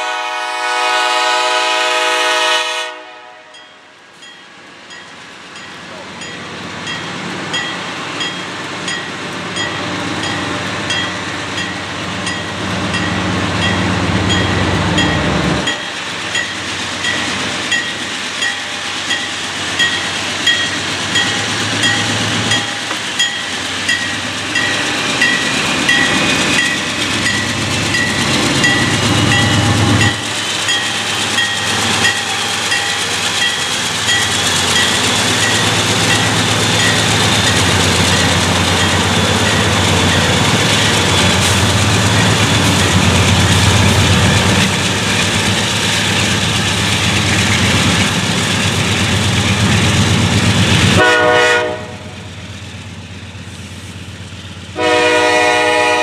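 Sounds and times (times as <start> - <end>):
train passing: 0.0 - 56.0
crossing bell ringing: 3.5 - 44.7
diesel locomotive rumble: 4.7 - 56.0.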